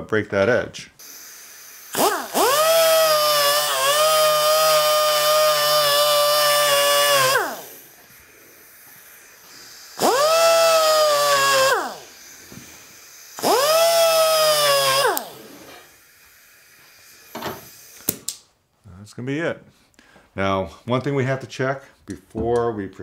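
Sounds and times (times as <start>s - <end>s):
die grinder high whine: 1.0s - 16.1s.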